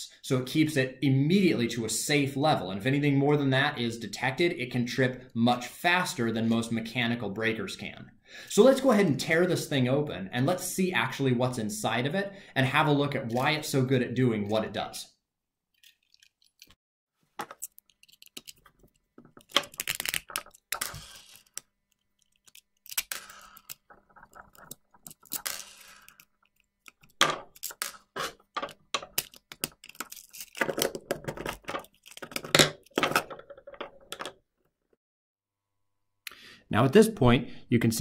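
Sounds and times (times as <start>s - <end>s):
screwdriver on outlet clicks and scrapes: 17.4s - 33.1s.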